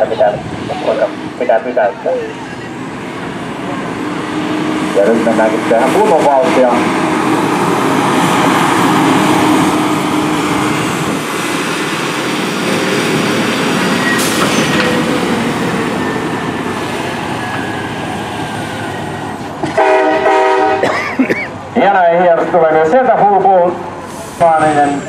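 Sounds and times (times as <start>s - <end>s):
truck diesel engine under load: 0.0s - 25.0s.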